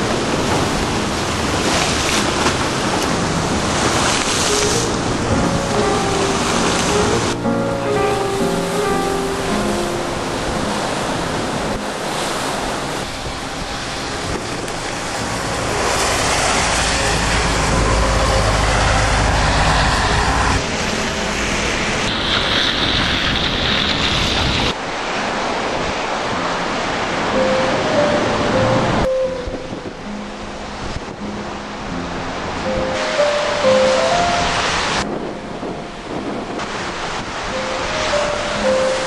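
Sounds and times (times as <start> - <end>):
rough water splashing: 0.0 - 7.7, 9.7 - 28.0
heavy low rumble: 0.0 - 24.8
rain: 0.0 - 29.0, 36.0 - 39.0
wind gusting on microphone: 0.0 - 39.0.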